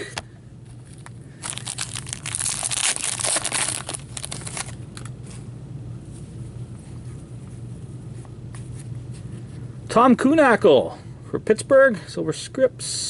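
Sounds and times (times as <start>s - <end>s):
wrapper crinkling and tearing: 0.8s - 5.1s
cards rustling and clicking: 0.8s - 5.4s.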